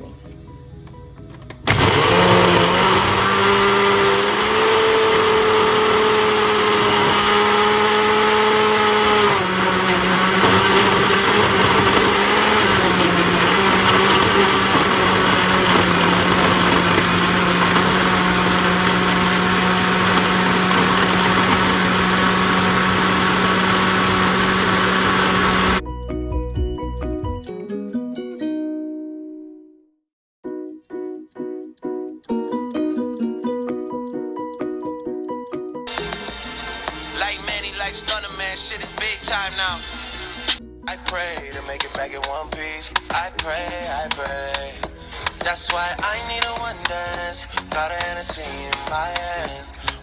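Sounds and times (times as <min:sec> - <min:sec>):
blender running: 0:01.7 - 0:25.8, 0:35.9 - 0:37.7, 0:39.4 - 0:40.6.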